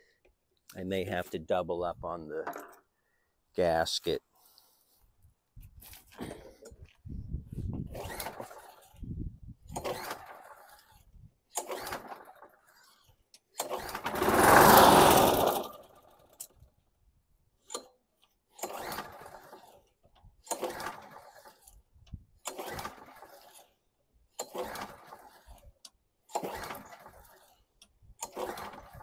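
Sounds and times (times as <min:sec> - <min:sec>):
recoil starter pulls: 0:07.8 - 0:16.8, 0:17.6 - 0:29.0
small engine firing: 0:07.9 - 0:08.9, 0:09.7 - 0:12.5, 0:13.6 - 0:16.4, 0:18.6 - 0:19.8, 0:20.4 - 0:21.7, 0:22.4 - 0:23.7, 0:24.4 - 0:25.6, 0:26.2 - 0:27.5, 0:28.2 - 0:29.0.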